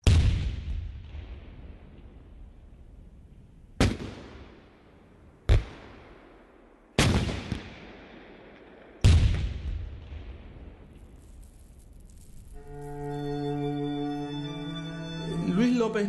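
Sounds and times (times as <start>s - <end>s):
echoing gunshots: 5.5s - 10.9s.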